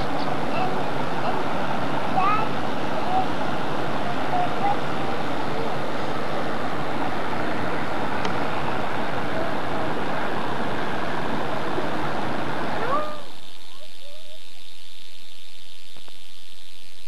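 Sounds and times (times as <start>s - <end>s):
steady rushing outdoor noise: 0.0s - 14.8s.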